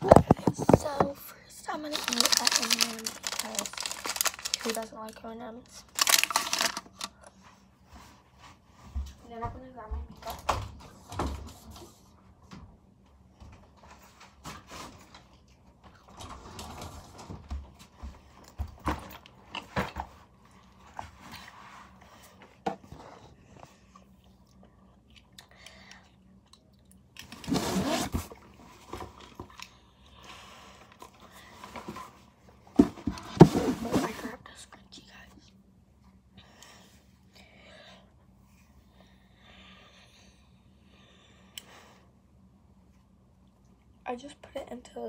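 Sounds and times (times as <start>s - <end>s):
rustling close to microphone: 1.8s - 4.9s.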